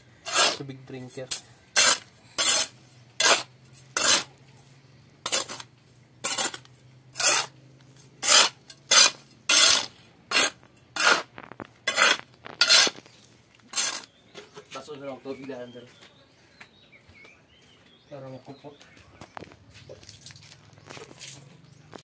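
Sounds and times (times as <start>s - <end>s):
trowel scraping concrete: 0.2s - 4.4s, 5.2s - 14.9s.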